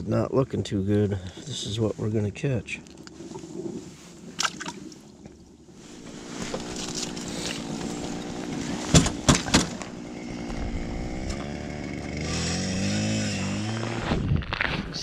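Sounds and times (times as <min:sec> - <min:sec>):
small engine running: 0:06.0 - 0:09.3, 0:09.9 - 0:14.0
sharp knocks: 0:08.9 - 0:09.8.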